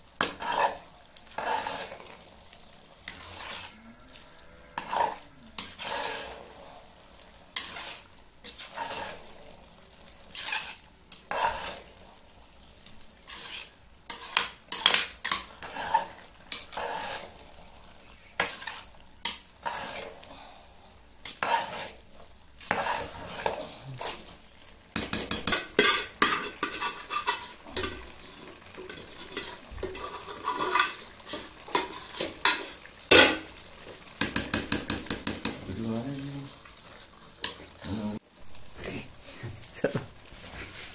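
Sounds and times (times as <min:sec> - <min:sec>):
spoon scraping metal pot: 0:00.2 - 0:02.2, 0:03.0 - 0:06.6, 0:07.6 - 0:09.2, 0:10.3 - 0:11.9, 0:13.2 - 0:17.4, 0:18.3 - 0:20.2, 0:21.2 - 0:22.0, 0:22.6 - 0:24.3, 0:25.0 - 0:33.6, 0:34.2 - 0:35.6.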